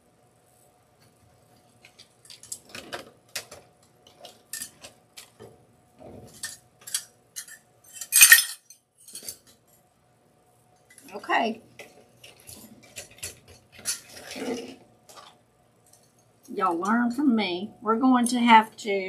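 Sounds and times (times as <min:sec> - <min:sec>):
metal clatter: 0:06.2 - 0:09.5
tin pails clinking and rattling: 0:06.2 - 0:09.5, 0:11.8 - 0:15.4.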